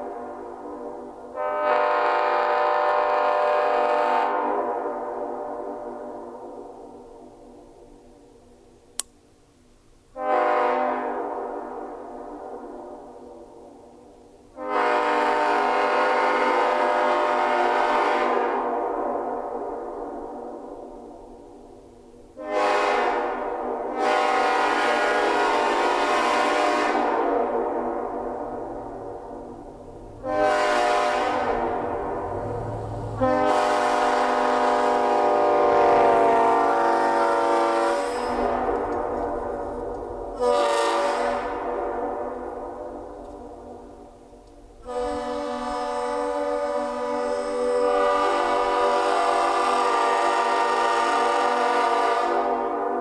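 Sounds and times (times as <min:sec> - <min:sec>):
locomotive air horn chord: 0:00.0 - 0:05.7, 0:10.1 - 0:12.3, 0:14.5 - 0:18.9, 0:22.4 - 0:42.6, 0:44.8 - 0:53.0.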